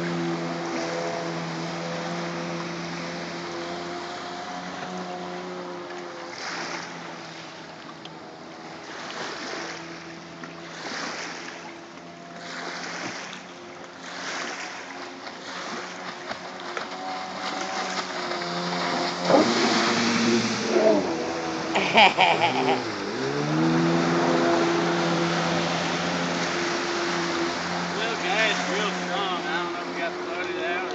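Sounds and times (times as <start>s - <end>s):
jet ski engine: 0.0s - 30.9s
rushing water spray: 8.8s - 11.7s, 12.4s - 30.9s.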